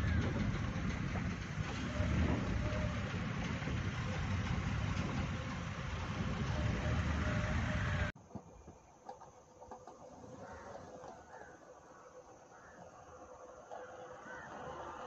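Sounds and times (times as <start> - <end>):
car engine: 0.0 - 8.2.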